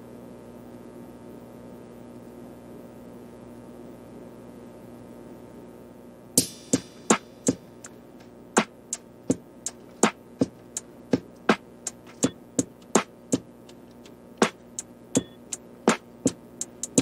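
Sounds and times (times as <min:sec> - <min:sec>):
sharp clicky percussion beat: 0:06.4 - 0:17.0.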